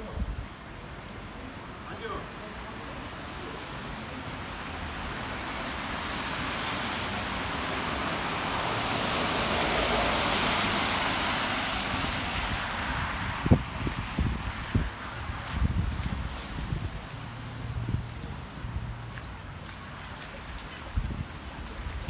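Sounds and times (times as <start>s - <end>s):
car tyres hissing on wet road: 3.4s - 18.2s.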